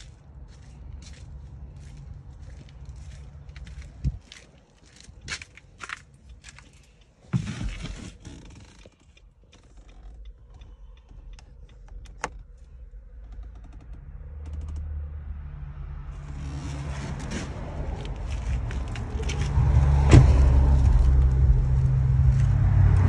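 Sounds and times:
car engine rumble: 0:00.0 - 0:23.0
car door shutting: 0:20.0 - 0:21.2.

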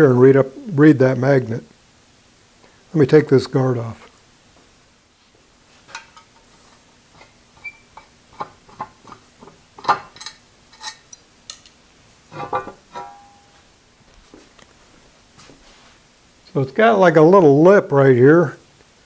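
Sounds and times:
metal clank: 0:09.8 - 0:11.7, 0:12.3 - 0:13.6.

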